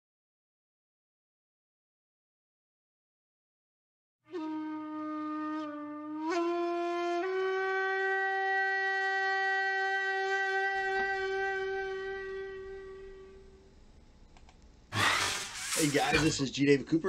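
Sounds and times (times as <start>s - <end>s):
horn-like wind instrument note: 4.2s - 13.6s.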